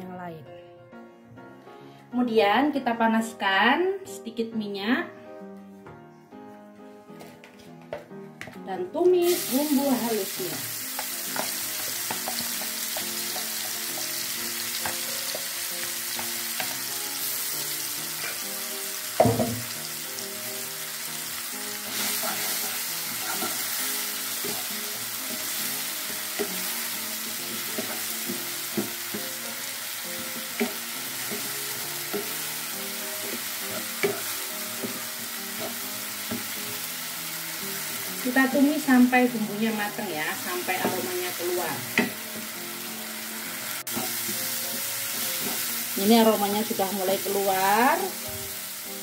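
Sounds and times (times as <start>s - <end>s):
paste sizzling in hot oil: 9.2s - 49.0s
taps and knock on pan: 19.2s - 19.7s, 41.9s - 42.2s
wooden spatula scraping wok: 21.9s - 26.6s.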